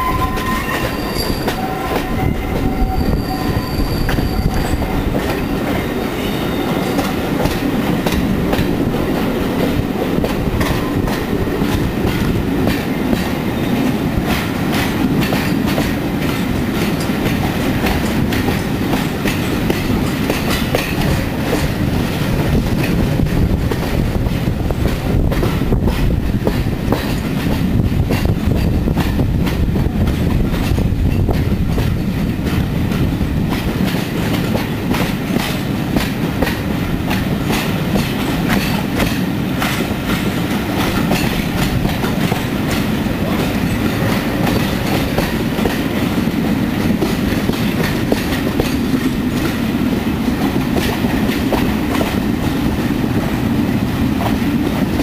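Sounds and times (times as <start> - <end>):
high wheel squeal: 0.0 - 5.2
train wheels clicking over rail joints: 0.3 - 55.0.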